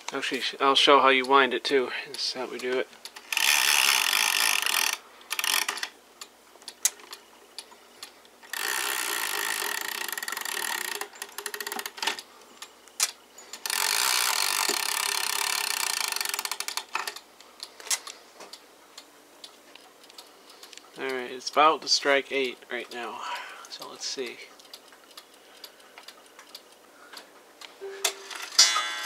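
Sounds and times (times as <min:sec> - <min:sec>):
clock chain ratcheting rattle: 0:03.3 - 0:05.9, 0:08.5 - 0:12.2, 0:13.5 - 0:17.2
quiet clicks: 0:15.7 - 0:27.8.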